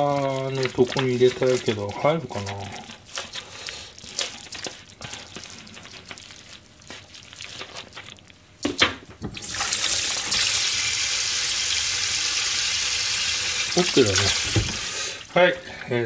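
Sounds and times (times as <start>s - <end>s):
plastic wrap crackling: 0.0s - 8.8s, 13.8s - 14.9s
tap water running into sink: 8.6s - 15.2s.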